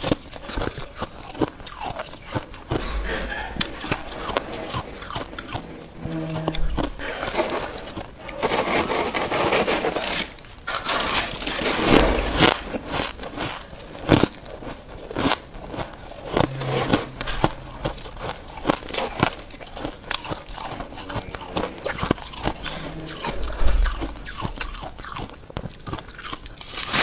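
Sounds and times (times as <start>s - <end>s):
ice crunching between teeth: 0.0s - 2.8s, 6.4s - 16.6s, 17.6s - 27.0s
ice crackling and cracking: 6.5s - 27.0s.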